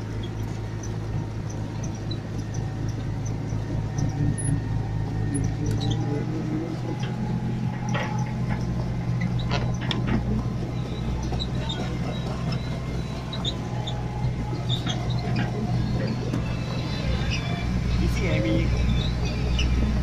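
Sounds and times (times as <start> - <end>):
excavator diesel engine: 0.0 - 20.0
high squeaks and clicks: 6.9 - 20.0.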